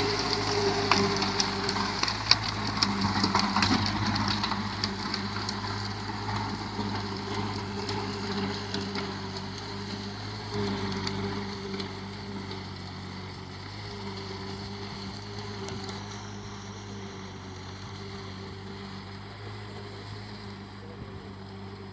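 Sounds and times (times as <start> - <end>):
tractor diesel engine running: 0.0 - 21.9.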